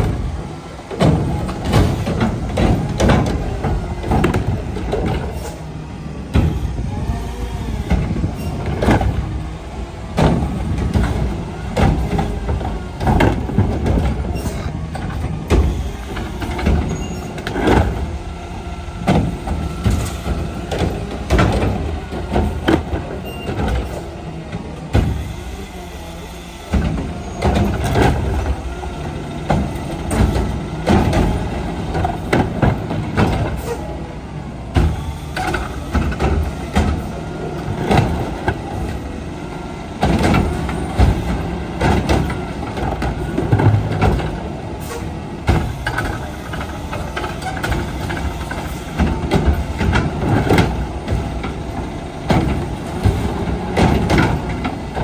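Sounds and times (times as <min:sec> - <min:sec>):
garbage truck running: 0:00.0 - 0:55.0
carts banging against can: 0:29.4 - 0:33.8, 0:40.0 - 0:55.0.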